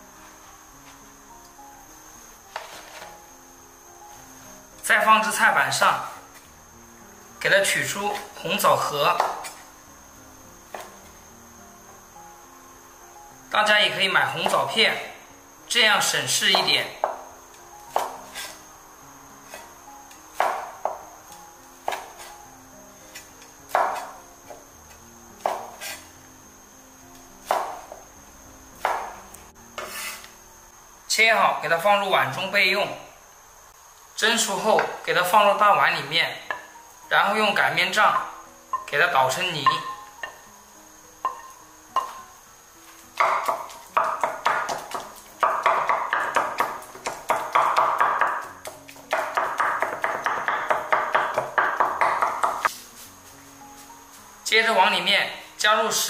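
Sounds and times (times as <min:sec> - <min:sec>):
cleaver chopping on wooden board: 0:09.2 - 0:09.6, 0:16.5 - 0:17.2, 0:17.9 - 0:18.6, 0:20.3 - 0:21.0, 0:21.8 - 0:22.3, 0:23.7 - 0:24.6, 0:25.4 - 0:26.0, 0:27.4 - 0:27.9, 0:28.8 - 0:29.2, 0:43.2 - 0:52.7
rolling pin pounding in bowl: 0:43.2 - 0:48.5, 0:49.1 - 0:52.7.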